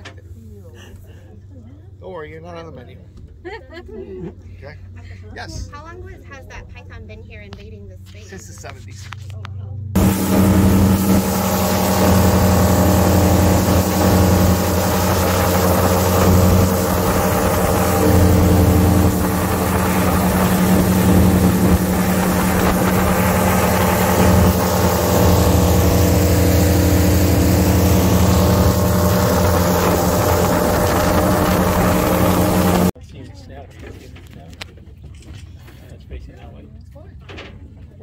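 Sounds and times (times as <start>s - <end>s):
airboat engine droning: 10.0s - 33.0s.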